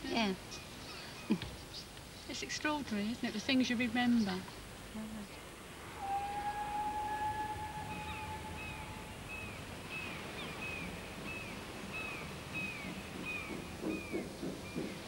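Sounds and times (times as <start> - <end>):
low uneven pulses: 2.2 - 11.9
steam locomotive whistle: 6.0 - 9.5
bird chirping: 6.1 - 15.0.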